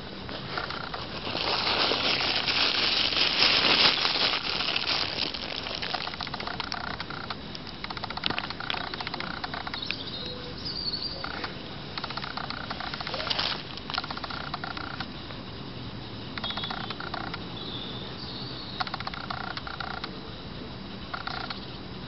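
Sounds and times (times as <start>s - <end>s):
squirrel digging in dry leaves: 0.0s - 15.0s.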